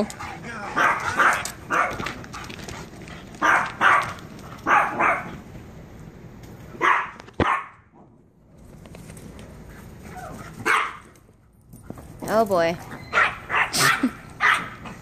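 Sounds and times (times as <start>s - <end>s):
dog barking: 0.8s - 2.0s, 3.4s - 5.3s, 6.8s - 7.8s, 10.6s - 11.0s, 13.1s - 14.8s.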